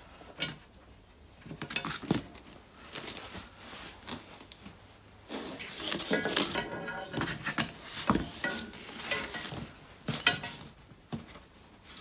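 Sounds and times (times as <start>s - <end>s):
metal parts clinking and knocking: 8.4s - 10.6s.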